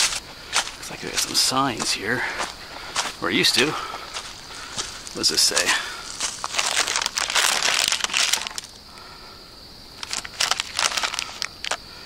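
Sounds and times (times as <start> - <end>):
plastic crinkling: 6.1 - 8.8, 10.0 - 11.8.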